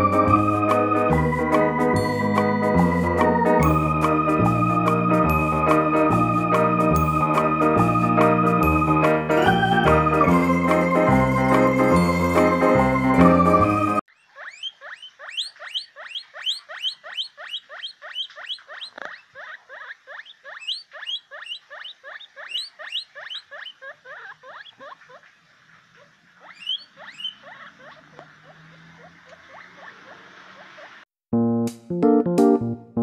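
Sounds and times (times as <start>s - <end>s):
guinea pig wheeking: 14.0s - 25.3s, 26.0s - 31.0s.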